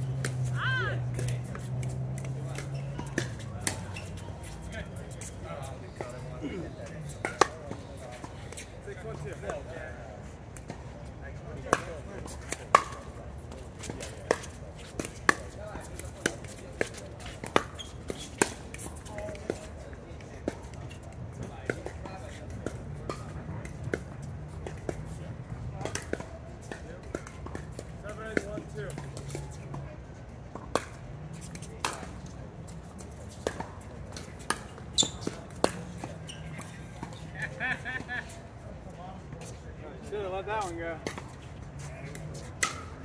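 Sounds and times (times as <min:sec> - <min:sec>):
paddles hitting pickleball: 0:00.1 - 0:08.7, 0:11.6 - 0:19.7, 0:33.2 - 0:38.4, 0:40.6 - 0:43.0.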